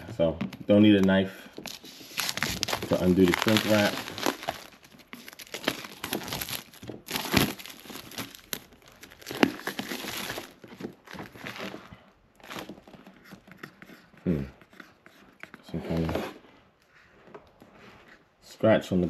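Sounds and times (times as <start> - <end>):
plastic shrink wrap crinkling and tearing: 1.6 - 13.2.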